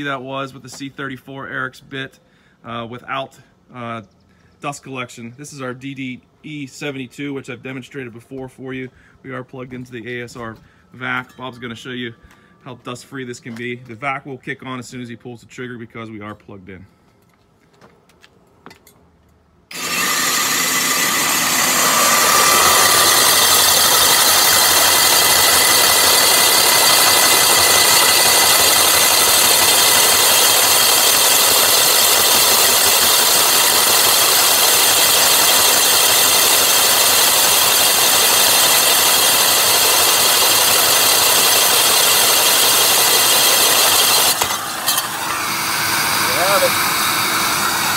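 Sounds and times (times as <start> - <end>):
dust extractor vacuum running: 19.7 - 47.9
rotary hammer drilling concrete: 19.7 - 47.9.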